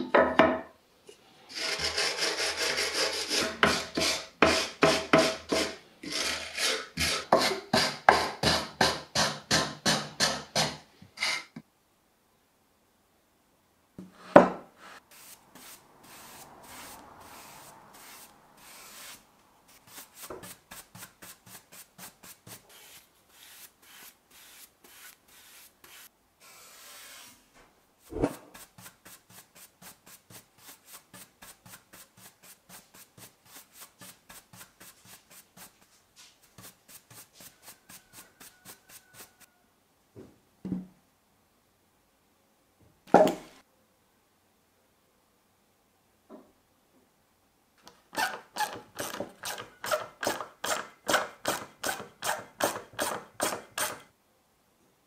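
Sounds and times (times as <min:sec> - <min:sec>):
stiff brush scrubbing wood: 0:15.1 - 0:27.3.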